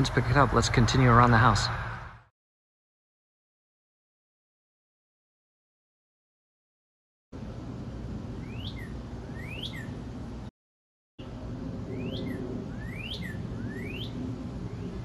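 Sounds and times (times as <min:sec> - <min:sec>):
cardinal whistled calls: 0:08.4 - 0:10.0, 0:11.9 - 0:14.2.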